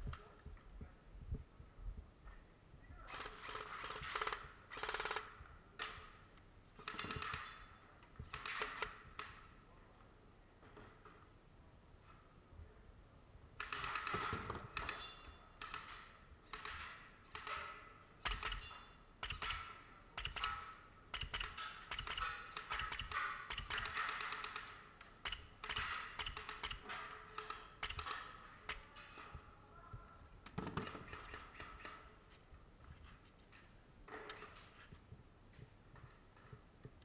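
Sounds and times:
airsoft guns firing: 0:06.8 - 0:07.6, 0:13.6 - 0:29.3, 0:30.5 - 0:32.1.

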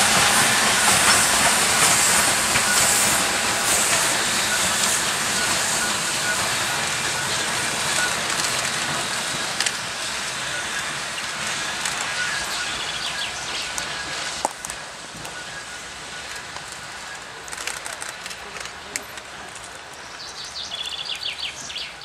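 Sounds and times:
steam locomotive hissing: 0:00.0 - 0:22.0.

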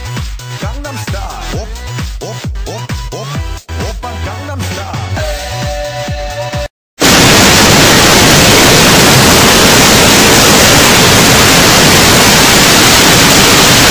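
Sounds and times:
dance-pop music: 0:00.0 - 0:06.7
tv static hiss: 0:07.0 - 0:13.9.

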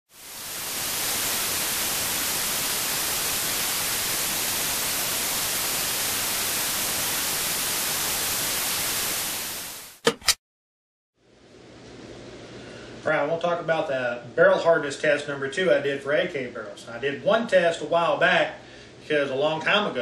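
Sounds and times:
television static hiss: 0:00.2 - 0:10.0.

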